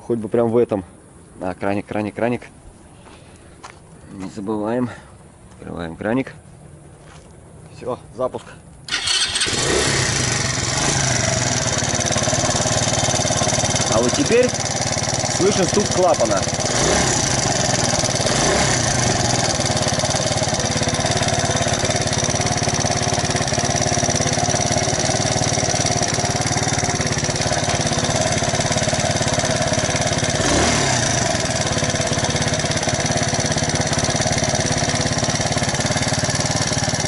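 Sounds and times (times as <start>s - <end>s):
moped engine idling: 8.9s - 37.0s.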